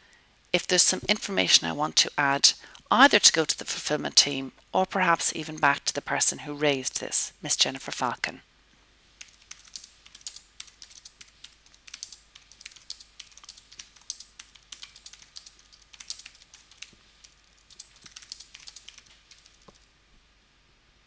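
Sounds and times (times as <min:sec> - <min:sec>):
computer keyboard typing: 0:09.2 - 0:19.8.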